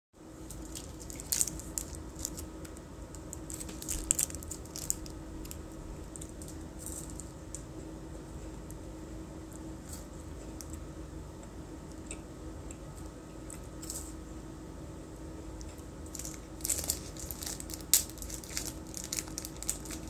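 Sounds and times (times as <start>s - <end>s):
plastic wrapper crinkling and tearing: 0.5s - 7.3s, 16.1s - 20.0s.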